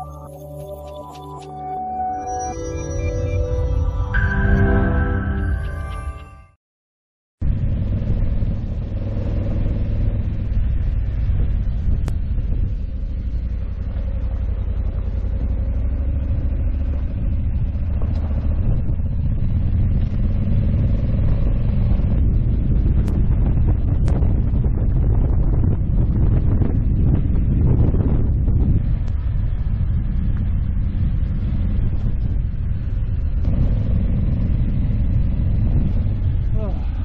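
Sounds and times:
motorcycle engine rumble: 7.4s - 37.0s
wind and tyre noise: 7.4s - 37.0s.

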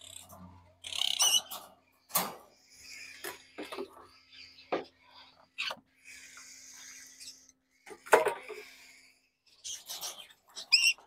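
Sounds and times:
bird chirps: 0.0s - 1.6s, 9.4s - 11.0s
wire cages rattling: 0.0s - 4.1s.

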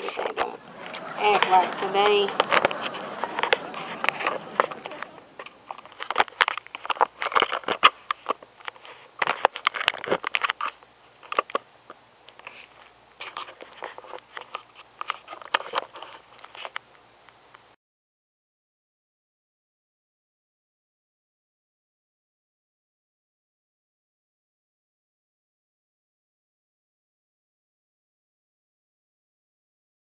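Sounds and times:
camera handling noise: 0.0s - 16.9s.

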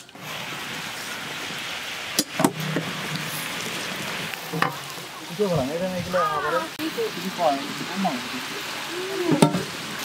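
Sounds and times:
pumpkin sizzling in a pan: 0.0s - 10.0s
voices: 4.9s - 10.0s.

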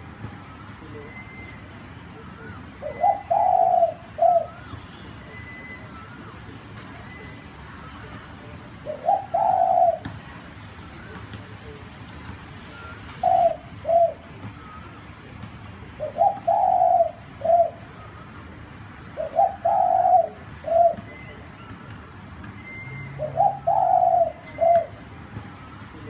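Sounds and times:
small birds chirping: 0.9s - 18.3s
dove cooing: 2.2s - 4.7s, 7.9s - 11.8s, 12.4s - 14.7s, 16.0s - 18.2s, 19.2s - 21.5s, 22.7s - 25.0s.

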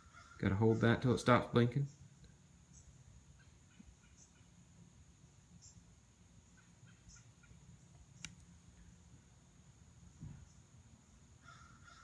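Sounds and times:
faint high chirp: 2.7s - 4.5s, 5.6s - 5.9s, 6.5s - 8.9s.

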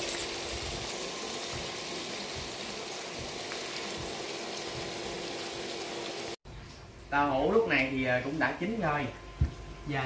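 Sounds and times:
tofu sizzling in oil: 0.0s - 6.4s.

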